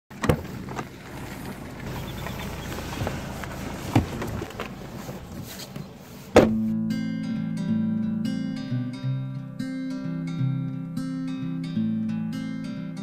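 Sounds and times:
handling knocks: 0.1 - 6.7
car boot latch click: 5.7 - 6.7.

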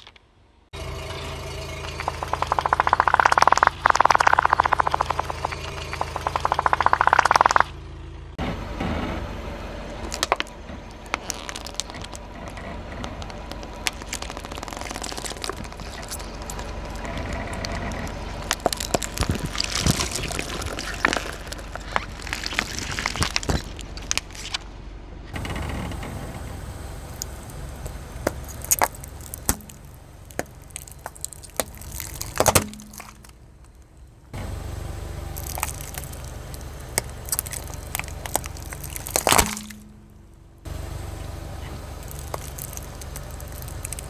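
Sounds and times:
low rumble: 0.4 - 44.0
tyre crushing crunchy objects: 9.9 - 24.7, 27.1 - 34.1, 35.3 - 40.2, 41.7 - 44.0.

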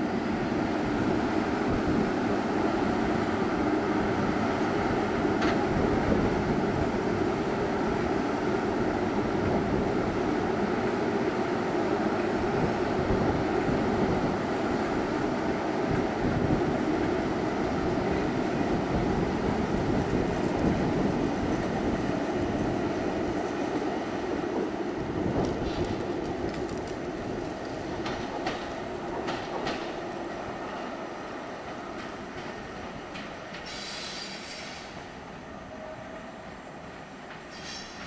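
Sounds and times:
train wheels rumbling on rails: 0.0 - 38.0
wheels clicking over rail joints: 25.4 - 30.0
high wheel squeal: 33.6 - 35.0, 37.5 - 38.0.

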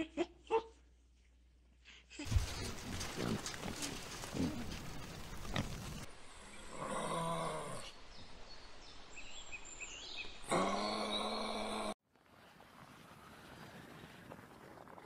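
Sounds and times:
pig grunting: 2.3 - 5.7.

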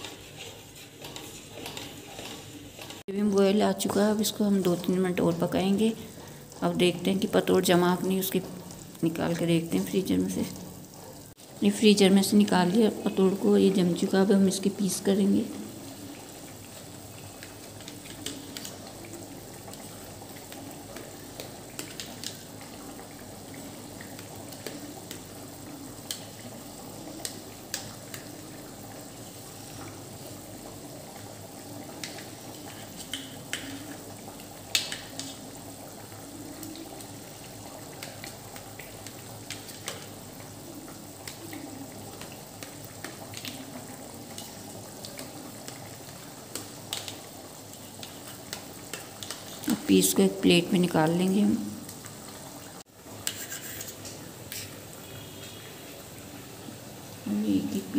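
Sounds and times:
gravy bubbling in a pot: 0.0 - 57.9.

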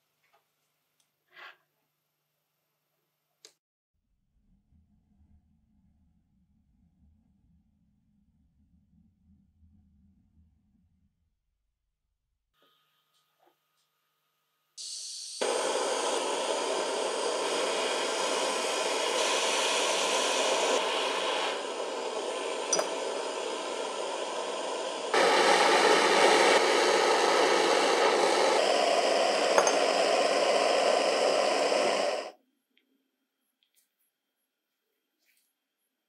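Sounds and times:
blowtorch flame rushing hiss: 14.8 - 32.3
gas hissing: 14.8 - 32.4.

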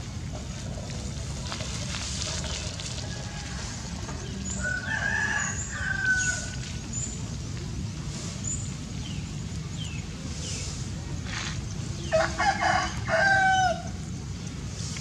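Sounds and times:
rooster crowing: 4.6 - 6.6, 12.1 - 13.9.

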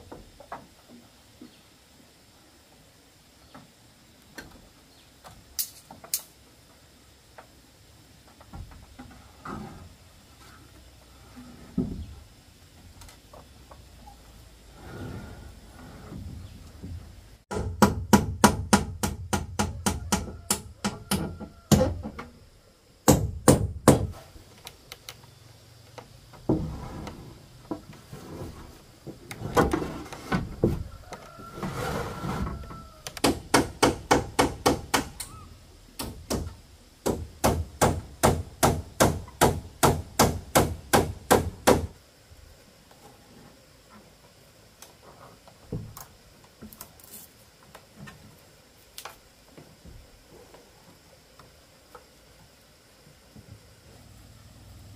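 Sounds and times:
hammering: 17.5 - 22.0, 23.0 - 24.2, 33.2 - 35.2, 36.0 - 41.9.

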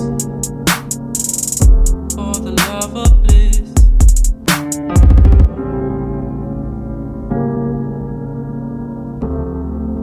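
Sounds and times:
loud beat with stuttering rattle: 0.0 - 5.5.

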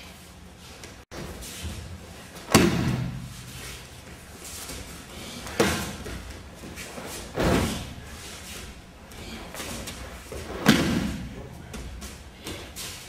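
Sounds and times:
bodies landing on mats: 2.3 - 4.2, 4.8 - 8.2, 9.2 - 12.9.

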